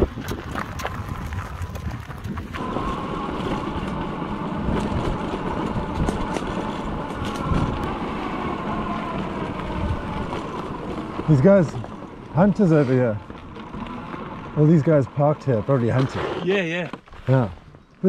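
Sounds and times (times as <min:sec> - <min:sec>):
wind buffeting microphone: 0:00.0 - 0:15.1
tyres rumbling on rough ground: 0:00.0 - 0:18.0
electric motor whine: 0:02.5 - 0:16.4.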